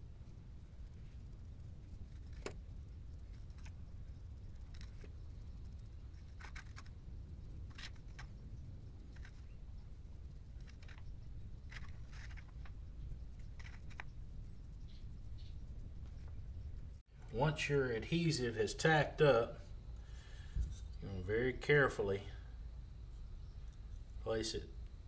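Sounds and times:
low background rumble: 0.0 - 25.0
brush tapping and scraping: 10.5 - 16.4.

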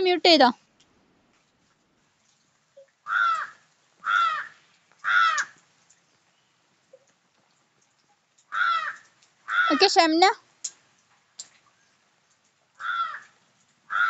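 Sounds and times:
crow cawing: 3.0 - 5.6, 8.5 - 9.9, 12.8 - 14.0.

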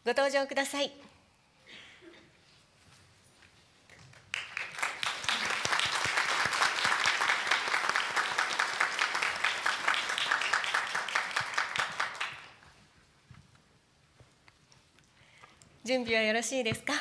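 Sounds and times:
audience applauding: 4.2 - 12.7.

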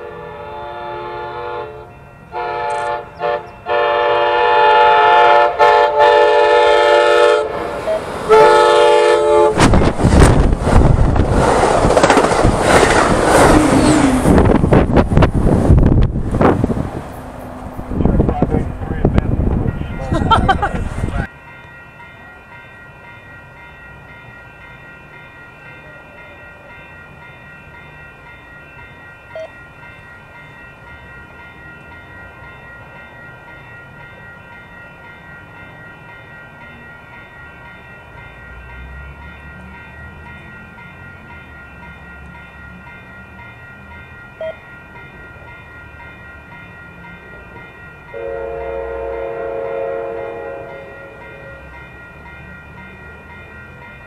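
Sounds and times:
train horn blast: 0.0 - 9.8, 48.1 - 51.7.

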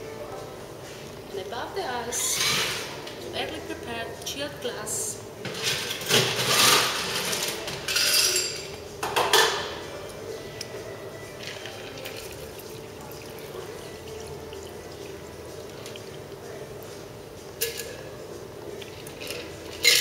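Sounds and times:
liquid pouring over ice: 11.4 - 16.5
ice and metal tools clinking: 19.2 - 20.0.

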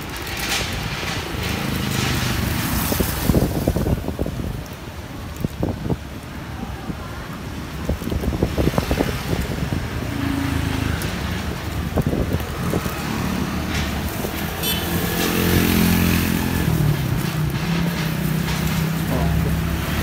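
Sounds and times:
plastic rustling: 0.0 - 5.7
motorbike engines passing: 0.0 - 20.0.

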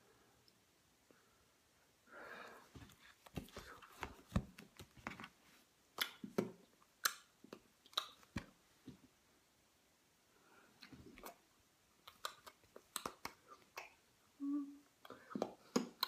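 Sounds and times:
book rustling: 2.7 - 5.7.

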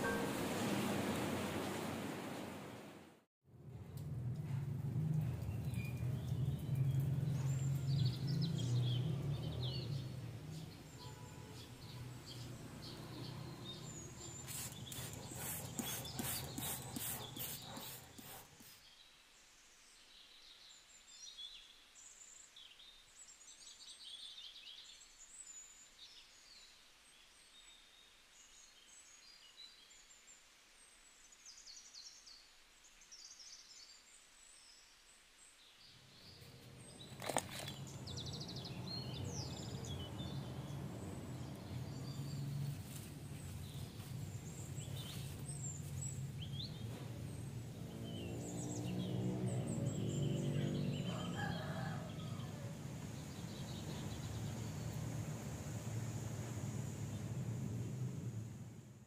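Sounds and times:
small birds chirping: 5.4 - 19.2, 35.7 - 58.3.

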